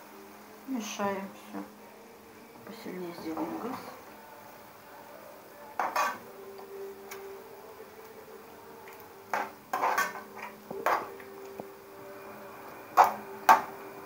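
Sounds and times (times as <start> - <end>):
spoon scraping frying pan: 5.8 - 6.3, 9.3 - 11.2.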